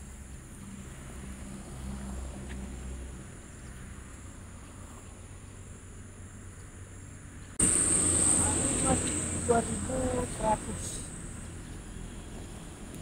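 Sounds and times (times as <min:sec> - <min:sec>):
high-pitched insect chorus: 0:00.0 - 0:12.8
low rumble: 0:07.6 - 0:12.9.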